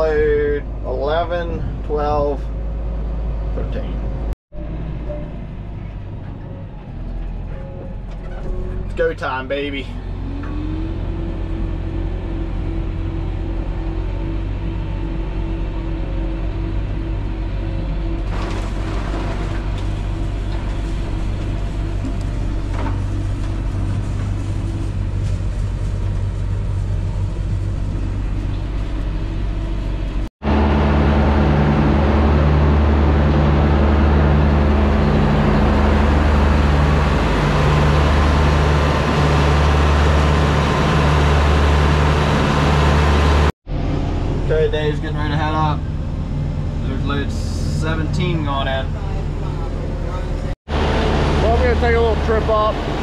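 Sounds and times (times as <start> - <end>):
tractor engine droning: 0.0 - 53.0
pulsing low hum: 10.0 - 51.8.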